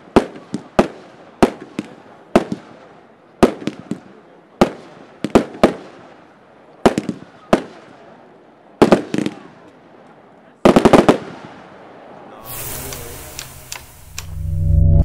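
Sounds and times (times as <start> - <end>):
firework bangs echoing: 6.8 - 8.0, 10.7 - 11.6, 12.4 - 14.1.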